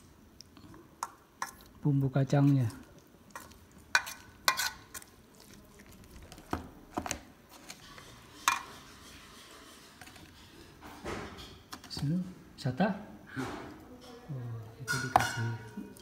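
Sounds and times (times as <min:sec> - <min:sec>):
salad being stirred: 0:00.3 - 0:12.0
metal spoon clinking on steel bowl: 0:03.4 - 0:05.1, 0:14.8 - 0:16.0
spoon scraping plastic tub: 0:06.2 - 0:10.7.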